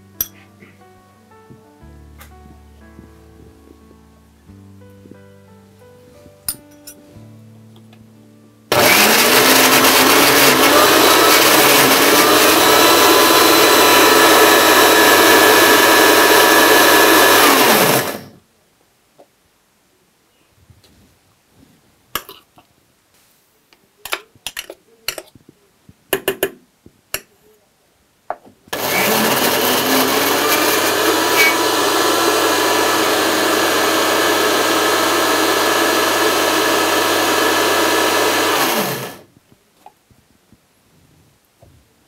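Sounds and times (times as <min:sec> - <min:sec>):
mixer grinder motor running: 0:08.7 - 0:18.4, 0:28.7 - 0:39.2.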